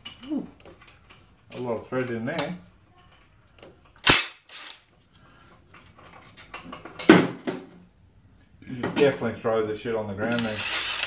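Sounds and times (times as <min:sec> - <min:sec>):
impact wrench bursts: 0:04.0 - 0:04.8, 0:10.2 - 0:11.0.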